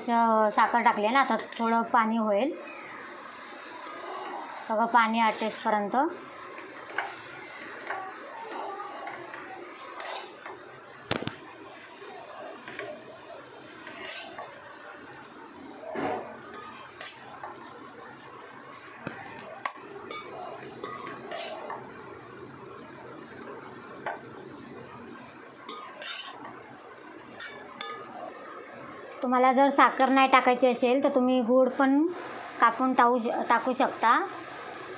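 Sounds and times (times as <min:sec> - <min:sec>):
faint sizzle: 0:00.0 - 0:34.9
spoon scraping a pan: 0:03.8 - 0:05.7, 0:06.5 - 0:10.7, 0:12.1 - 0:14.6, 0:15.9 - 0:17.6, 0:19.0 - 0:21.8, 0:25.7 - 0:26.5, 0:27.3 - 0:28.4.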